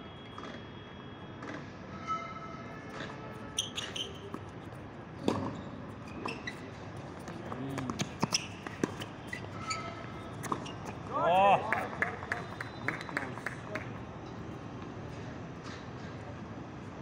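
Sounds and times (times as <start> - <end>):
tennis ball bouncing on court: 2.9 - 16.2
tennis ball struck by racket: 5.2 - 5.6, 10.3 - 11.0.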